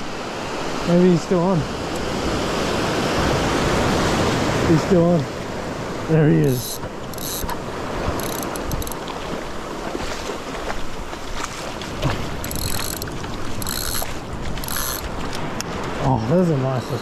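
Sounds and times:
surf washing: 0.0s - 17.0s
wind on microphone: 5.6s - 16.0s
fishing reel buzzing: 6.4s - 9.0s, 12.4s - 15.1s.

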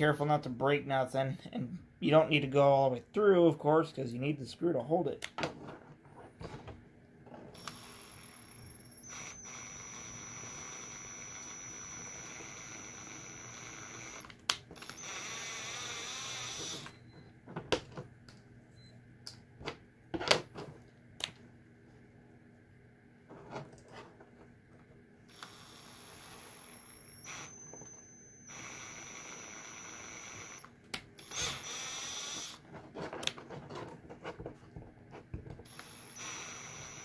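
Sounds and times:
cordless drill whining: 7.6s - 17.0s, 25.3s - 32.6s, 35.7s - 37.0s
drill click: 28.5s - 32.6s, 35.7s - 37.0s.

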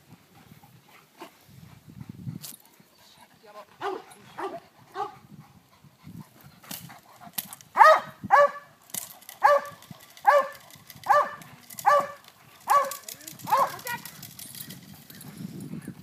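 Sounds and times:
dog barking: 7.8s - 8.7s, 9.4s - 13.8s.

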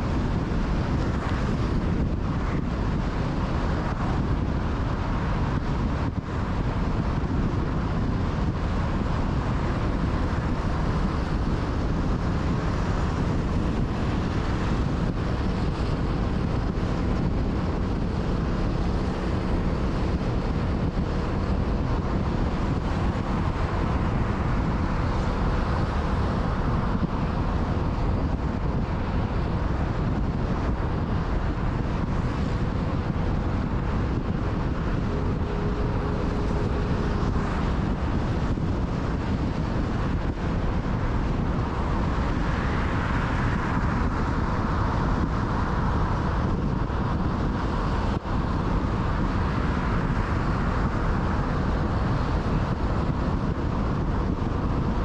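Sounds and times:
car road noise: 0.0s - 55.0s
wind on microphone: 0.0s - 55.0s.

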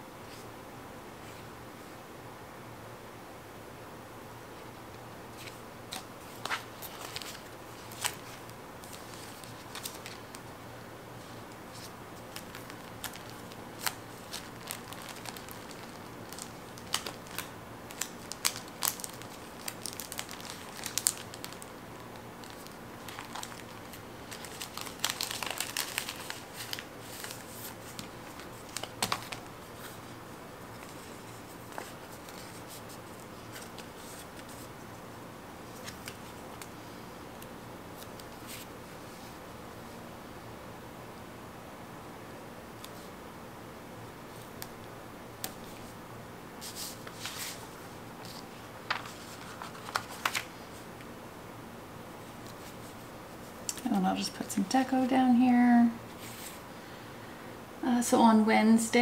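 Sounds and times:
paper crinkling: 5.3s - 10.5s, 11.2s - 34.7s, 46.6s - 50.8s.

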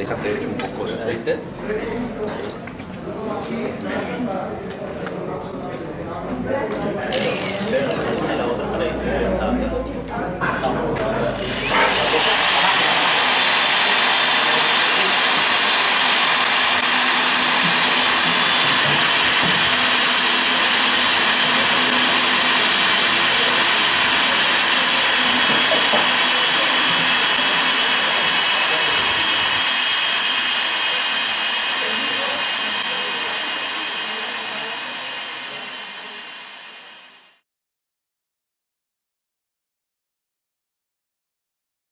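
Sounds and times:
electric drill boring through plate: 7.1s - 8.5s, 11.3s - 37.4s.

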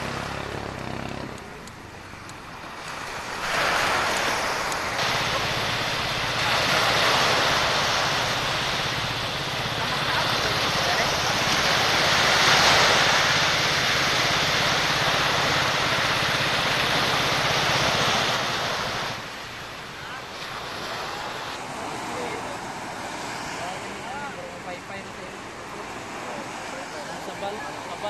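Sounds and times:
small boat engine running: 0.0s - 28.0s
surf washing: 0.0s - 28.0s
loud wind noise: 2.5s - 24.3s.

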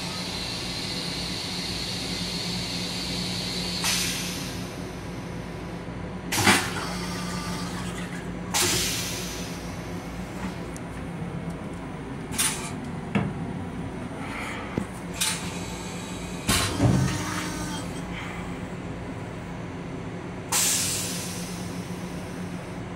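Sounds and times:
railcar interior hum: 0.0s - 22.9s.

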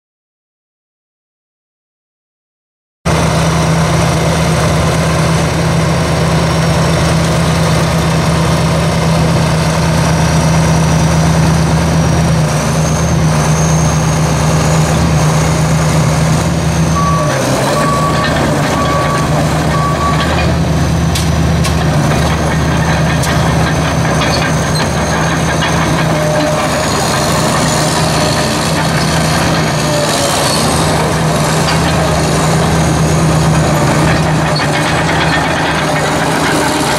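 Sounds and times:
diesel engine running: 3.1s - 36.9s
backup alarm beeping: 16.8s - 20.6s.

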